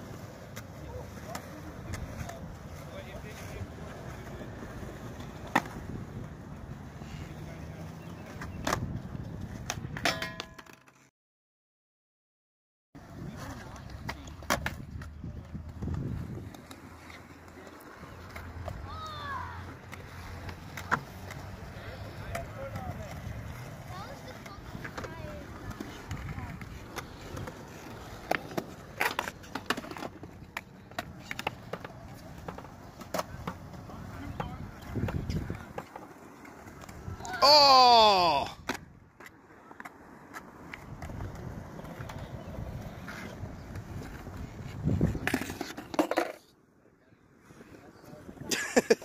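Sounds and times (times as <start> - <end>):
skateboard clacking on concrete: 0.0 - 11.1, 13.1 - 37.4, 38.5 - 46.6
skateboard clacks and knocks: 8.1 - 11.0, 22.3 - 37.3.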